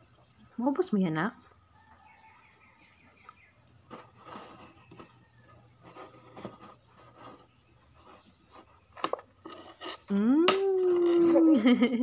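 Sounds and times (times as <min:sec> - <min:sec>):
fork scraping in bowl: 0:05.8 - 0:10.2.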